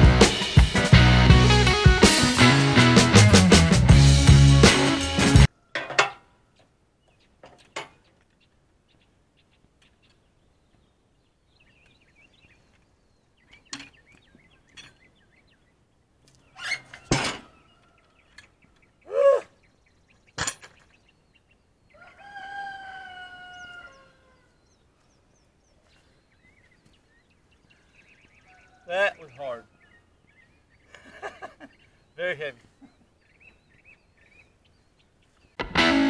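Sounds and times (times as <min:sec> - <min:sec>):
rooster crowing: 0:21.9 - 0:24.6.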